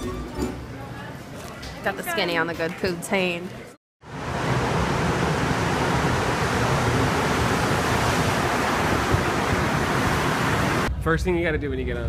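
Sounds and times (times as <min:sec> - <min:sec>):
metro train rushing into station: 0:04.1 - 0:10.9.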